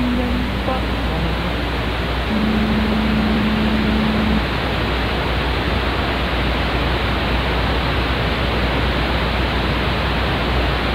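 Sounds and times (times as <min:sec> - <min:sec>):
low steady tone: 0:00.0 - 0:04.9
low hum: 0:00.0 - 0:06.7
tv static hiss: 0:00.0 - 0:10.9.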